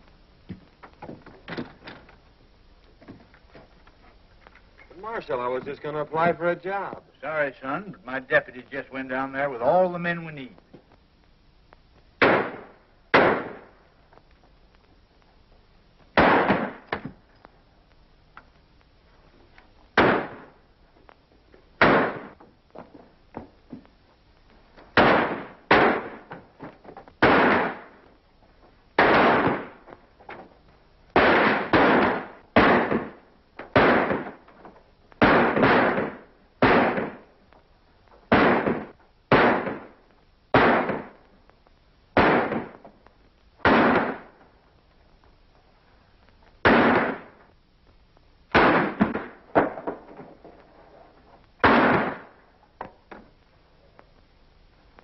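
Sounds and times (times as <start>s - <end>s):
gunshots with short echo: 12.2s - 13.7s, 16.2s - 17.0s, 20.0s - 20.5s, 21.8s - 22.4s, 25.0s - 26.3s, 27.2s - 28.0s, 29.0s - 29.8s, 35.2s - 37.3s, 38.3s - 41.2s, 42.2s - 42.8s, 43.6s - 44.3s, 46.6s - 47.4s, 51.6s - 52.3s.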